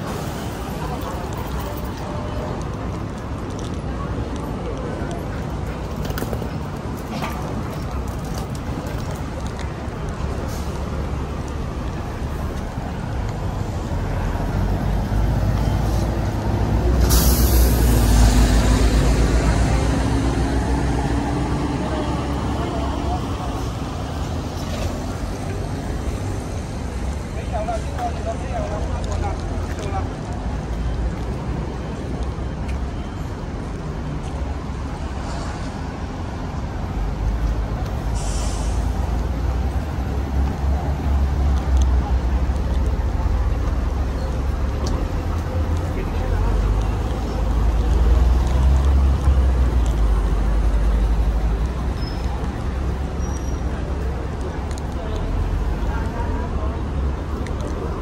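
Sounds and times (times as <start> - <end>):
bus engine rumble: 0.0 - 58.0
air brakes hissing: 17.0 - 18.3, 38.0 - 39.1.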